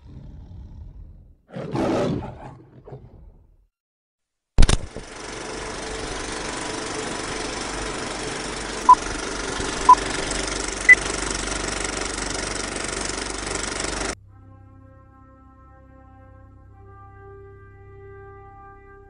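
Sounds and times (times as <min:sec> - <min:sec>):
film projector rattling: 0:04.6 - 0:14.2.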